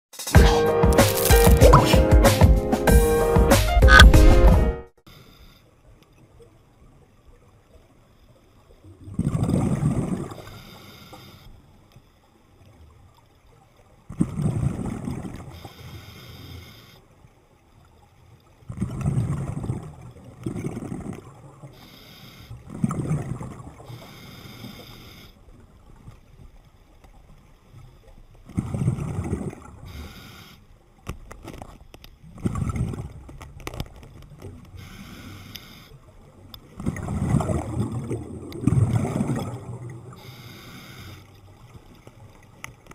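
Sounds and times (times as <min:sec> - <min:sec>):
exhaled bubbles rushing underwater: 0:08.8 - 0:10.5, 0:18.7 - 0:21.8, 0:22.6 - 0:24.0, 0:32.2 - 0:33.6, 0:36.0 - 0:40.6
regulator breathing hiss: 0:10.4 - 0:11.6, 0:15.6 - 0:17.0, 0:21.8 - 0:22.6, 0:23.9 - 0:25.4, 0:29.9 - 0:30.7, 0:34.8 - 0:36.0, 0:40.1 - 0:41.4.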